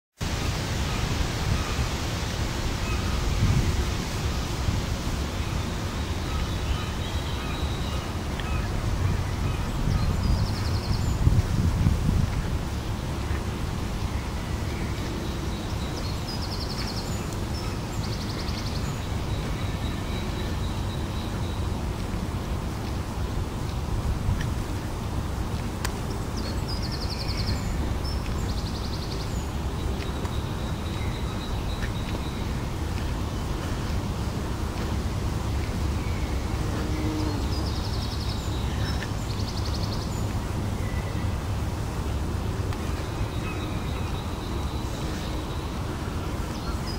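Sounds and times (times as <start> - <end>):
wind buffeting microphone: 0.2 - 7.0, 7.7 - 46.9
small birds chirping: 25.9 - 41.4.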